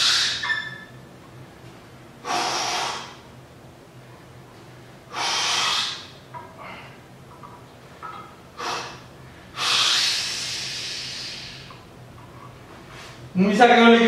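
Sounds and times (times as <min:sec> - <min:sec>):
man breathing hard: 0:05.1 - 0:07.1, 0:08.6 - 0:11.8.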